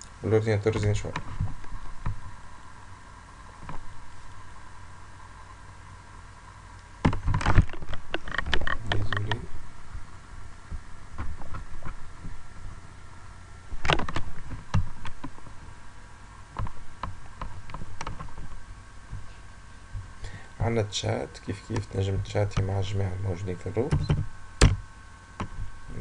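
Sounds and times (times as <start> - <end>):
faint high whine: 0.0 - 26.0
sharp clicks and knocks: 7.0 - 9.5, 13.8 - 15.5, 16.6 - 19.3, 23.9 - 24.8, 25.4 - 25.7.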